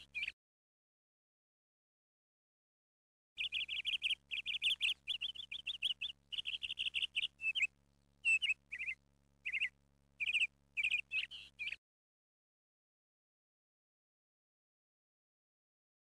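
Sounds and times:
small bird chirping: 0.0 - 0.4, 3.4 - 11.8.

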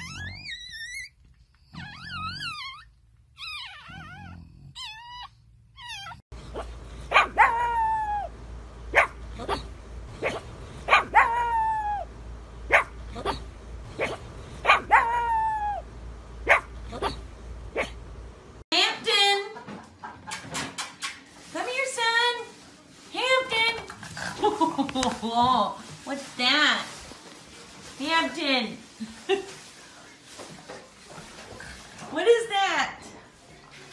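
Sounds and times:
puppies squeaking and whimpering: 0.0 - 8.3
dog howling: 3.4 - 6.2, 7.1 - 8.3, 10.9 - 12.1, 14.7 - 15.8
dog barking: 6.5 - 7.9, 8.9 - 11.6, 12.7 - 15.4, 16.4 - 18.0.

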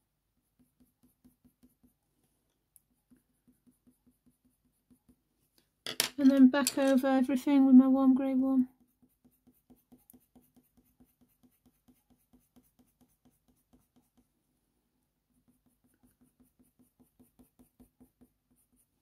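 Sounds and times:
pencil scratching on paper: 0.4 - 5.6, 8.6 - 14.4, 15.2 - 19.0.

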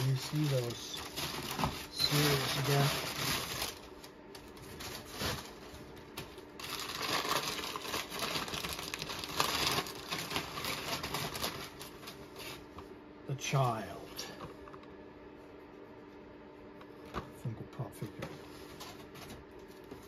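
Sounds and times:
packing paper rustling: 0.0 - 12.7.

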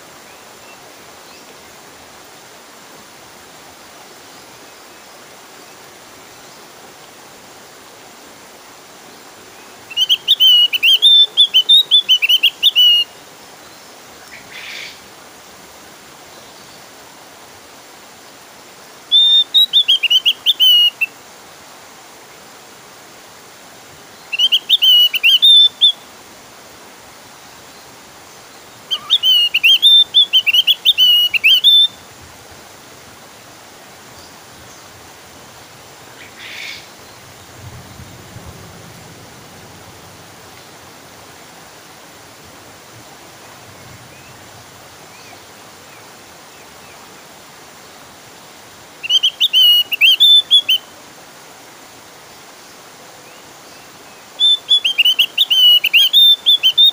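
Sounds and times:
steady background hiss: 0.0 - 56.9
bird chattering whistled notes: 9.9 - 13.0, 19.1 - 21.1, 24.4 - 26.0, 28.9 - 32.0, 49.0 - 50.8, 54.4 - 56.9.

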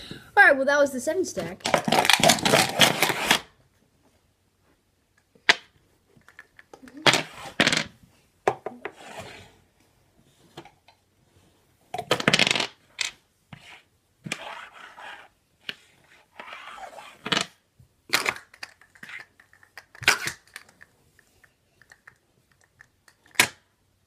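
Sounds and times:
dice rattling in a plastic cup: 12.2 - 13.2, 18.1 - 20.9.

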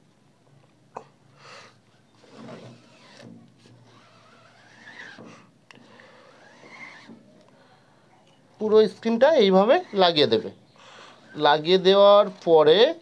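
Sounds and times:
plastic card rubbing on mesh: 2.2 - 5.5, 6.2 - 7.2, 9.3 - 12.6.

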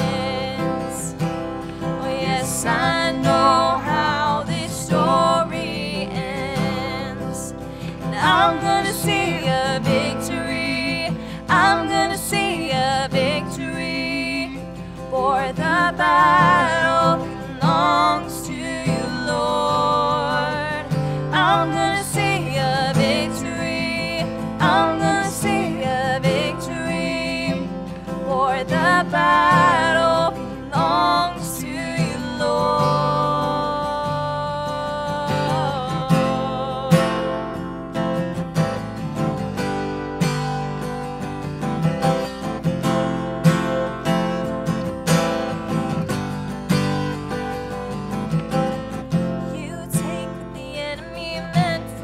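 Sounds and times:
man and woman singing: 0.0 - 37.5, 49.5 - 52.0
strummed acoustic guitar: 0.0 - 52.0.

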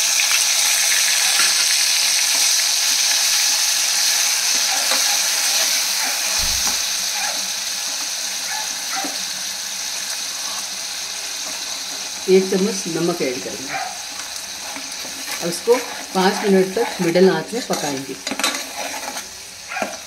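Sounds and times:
paste sizzling in hot oil: 0.0 - 20.0
short low thud: 6.4 - 6.8
spatula scraping a pot: 14.0 - 20.0.

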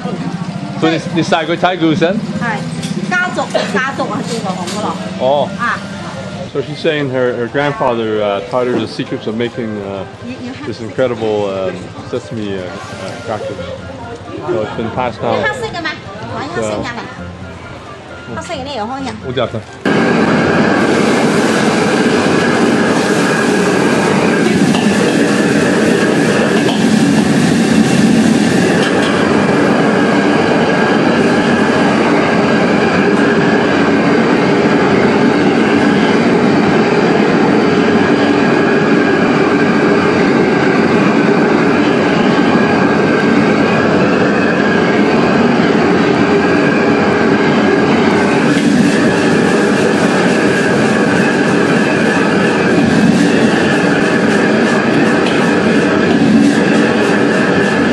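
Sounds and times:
wok stove burner roaring: 0.0 - 57.9.

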